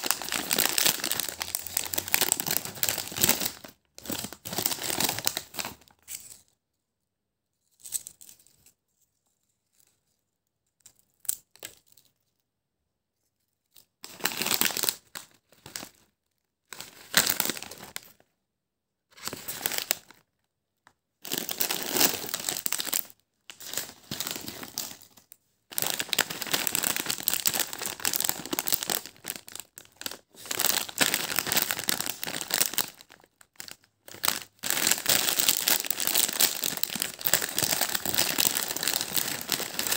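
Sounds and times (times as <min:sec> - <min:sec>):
plastic snack packets crinkling: 0:00.0 - 0:06.4, 0:14.0 - 0:16.1, 0:16.7 - 0:18.2, 0:19.2 - 0:20.3, 0:21.2 - 0:39.9.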